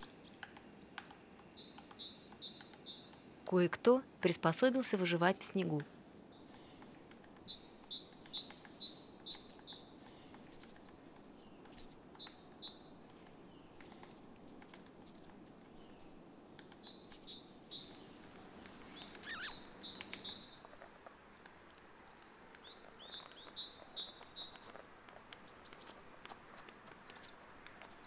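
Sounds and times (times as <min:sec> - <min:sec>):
faint outdoor hiss: 0:00.0 - 0:28.0
high bird chirps: 0:18.8 - 0:20.6.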